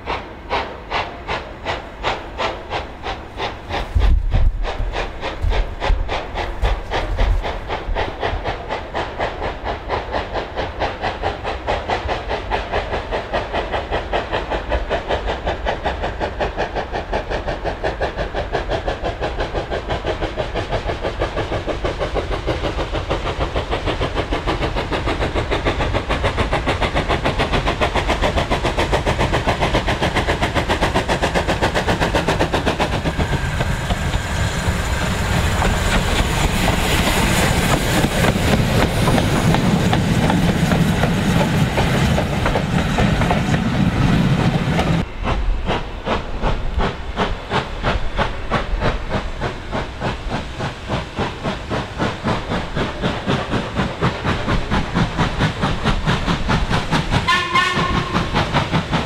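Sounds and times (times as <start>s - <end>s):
steam engine exhaust beats: 0.0s - 59.0s
train wheels clattering on rails: 0.0s - 59.0s
train whistle: 57.2s - 58.6s.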